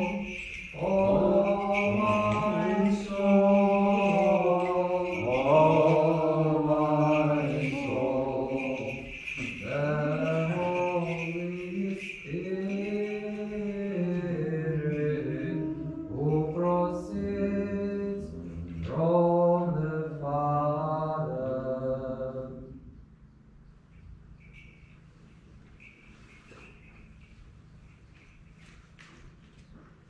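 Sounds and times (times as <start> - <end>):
voices singing slow chant: 0.0 - 23.0.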